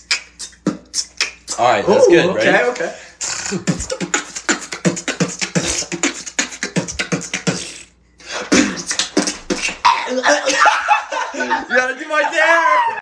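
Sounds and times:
person beatboxing: 0.0s - 1.7s, 3.2s - 9.8s.

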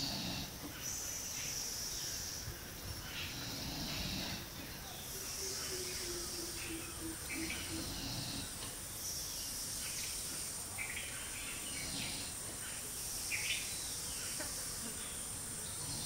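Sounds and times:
insect drone: 0.0s - 16.0s
bird chirps: 4.7s - 10.2s.

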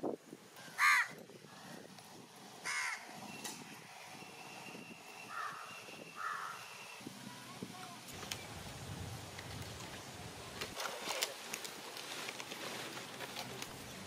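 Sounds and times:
crow cawing: 0.8s - 1.2s, 2.6s - 3.1s, 5.3s - 6.6s.

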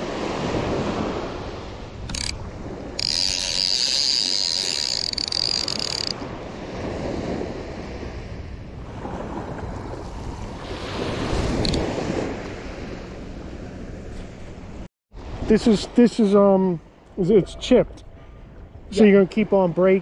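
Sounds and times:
wind on microphone: 0.0s - 15.4s
surf washing: 0.0s - 17.0s
fishing reel spool whirring: 2.0s - 6.3s.

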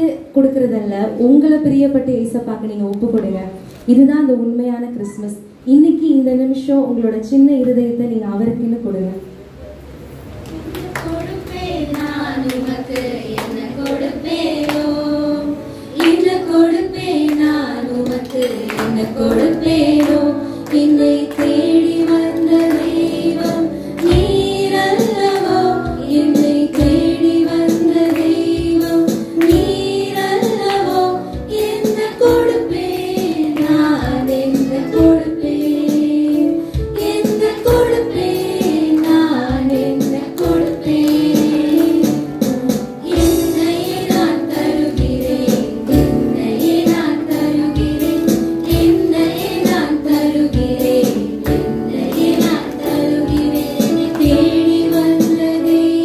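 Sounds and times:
women and children singing: 10.9s - 56.0s
percussion beat: 17.9s - 36.1s, 36.8s - 55.6s.

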